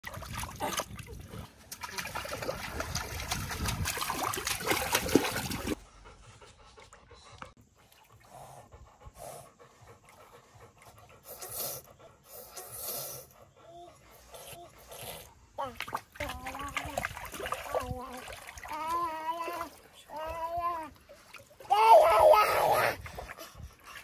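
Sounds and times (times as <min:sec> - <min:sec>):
water splashing in paddling pool: 0:00.0 - 0:05.8, 0:15.6 - 0:24.0
dog panting: 0:05.6 - 0:15.6, 0:22.8 - 0:24.0.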